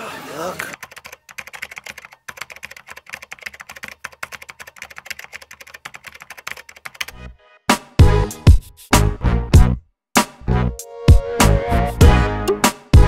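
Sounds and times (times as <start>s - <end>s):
rapid keyboard typing clicks: 0.7s - 7.2s
music with heavy beats: 7.7s - 10.4s, 11.1s - 13.0s.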